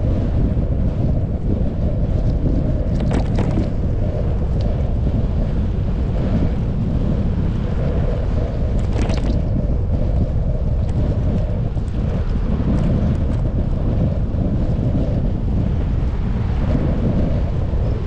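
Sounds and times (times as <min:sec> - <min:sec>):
wind rushing over microphone: 0:00.0 - 0:18.0
brief rattles: 0:02.9 - 0:03.8, 0:08.8 - 0:09.5.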